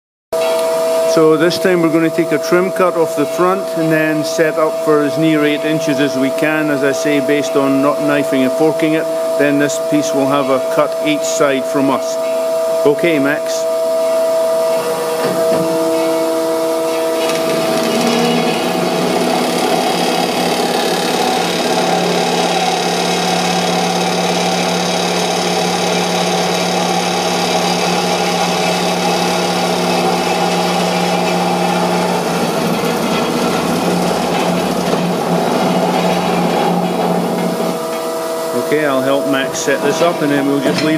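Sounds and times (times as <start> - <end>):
circular saw cutting metal: 0.4 - 40.9.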